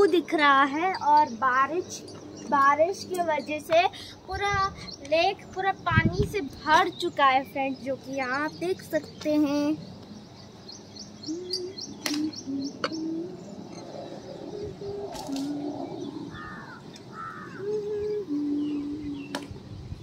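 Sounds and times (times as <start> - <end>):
small birds chirping: 0.0 - 20.0
doves cooing: 10.2 - 19.5.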